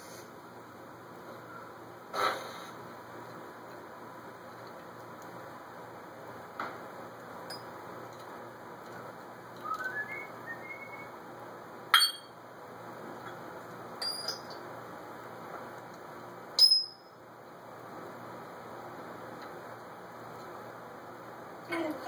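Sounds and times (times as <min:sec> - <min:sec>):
parrot whistling: 0:09.6 - 0:11.1.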